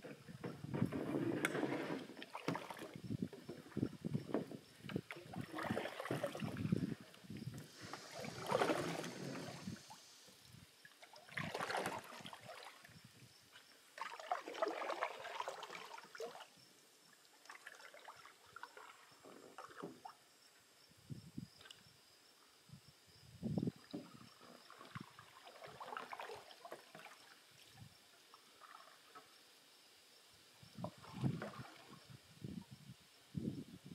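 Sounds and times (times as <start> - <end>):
paddles splashing in water: 0.8 - 10.0, 10.9 - 13.0, 13.9 - 16.5, 24.0 - 27.6, 30.8 - 32.1.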